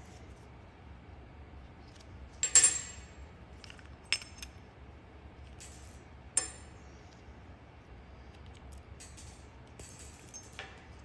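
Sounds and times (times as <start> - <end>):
metal parts clinking: 2.4 - 4.6, 8.5 - 11.0.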